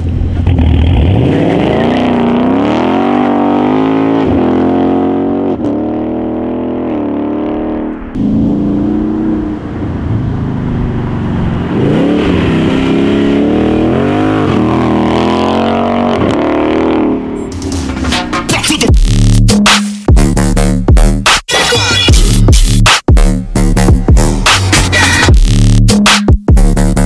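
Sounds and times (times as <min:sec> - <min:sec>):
car engine accelerating hard: 0:00.0 - 0:18.0.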